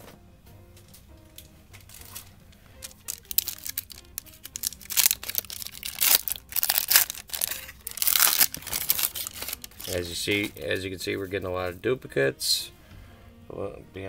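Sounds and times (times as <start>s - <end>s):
soft background music: 0.0s - 14.0s
foil wrapper tearing and crinkling: 1.9s - 10.6s.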